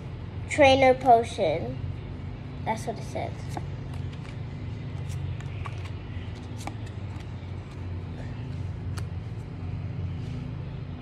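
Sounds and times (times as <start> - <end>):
low room hum: 0.0 - 11.0
trading cards flipped by hand: 3.4 - 7.9, 8.9 - 9.2.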